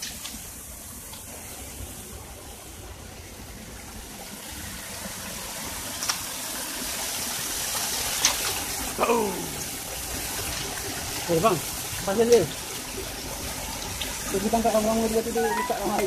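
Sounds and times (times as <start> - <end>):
waterfall splashing into basin: 0.0 - 16.0.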